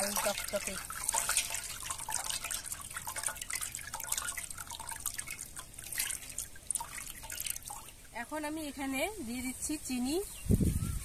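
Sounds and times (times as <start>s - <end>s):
juice dripping into a basin: 0.0s - 8.4s.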